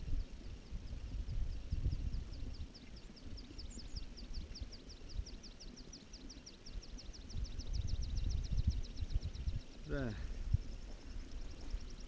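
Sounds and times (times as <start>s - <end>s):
wind buffeting microphone: 0.0s - 4.5s, 7.2s - 12.0s.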